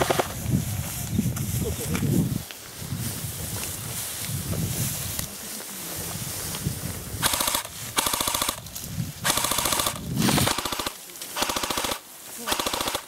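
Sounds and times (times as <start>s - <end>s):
airsoft rifles firing bursts: 0.0s - 0.4s, 7.2s - 8.6s, 9.2s - 13.0s.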